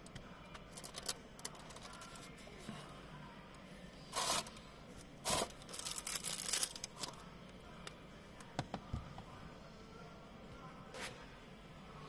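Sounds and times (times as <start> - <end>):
plastic packaging crinkling: 5.4 - 7.2.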